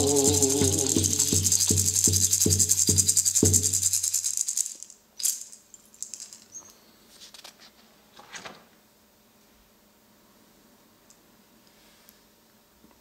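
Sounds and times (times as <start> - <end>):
frame drum struck with beater: 0.0 - 4.1
hand rattle shaking: 0.0 - 6.6.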